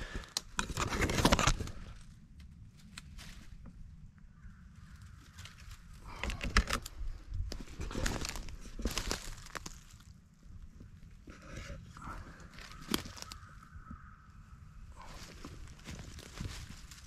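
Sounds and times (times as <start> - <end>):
twigs brushing: 0.6 - 3.9, 4.8 - 10.2, 11.3 - 14.2, 15.0 - 17.0
footsteps crunching dry leaves: 7.5 - 10.1, 12.3 - 13.6, 15.0 - 17.0.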